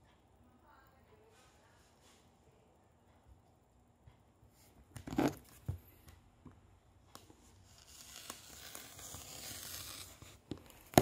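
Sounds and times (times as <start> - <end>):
rotary cutter slicing rubber: 7.8 - 11.0.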